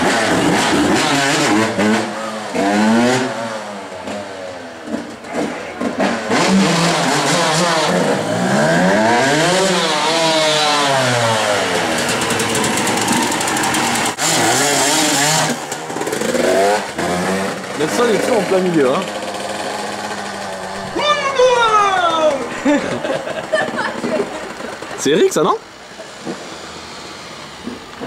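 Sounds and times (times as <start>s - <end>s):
motocross bike engine revving: 0.0s - 27.9s.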